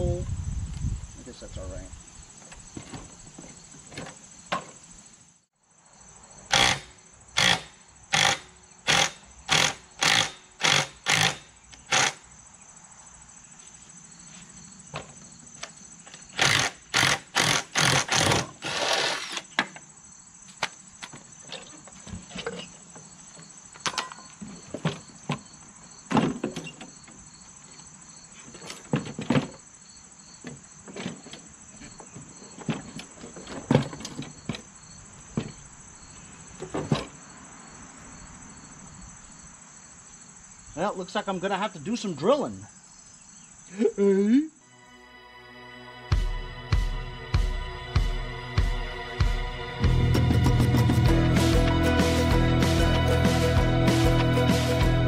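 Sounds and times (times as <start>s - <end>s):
crickets chirring: 0.0s - 51.1s
power tool bursts on metal bolts: 6.5s - 12.3s, 16.3s - 19.6s.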